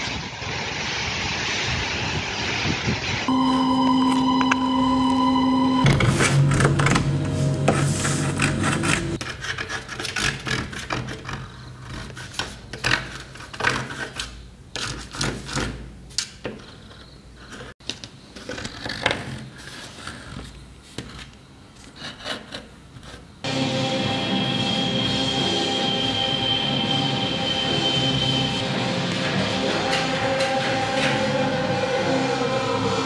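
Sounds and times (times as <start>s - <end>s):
needle scratching metal plate: 5.9s - 15.8s.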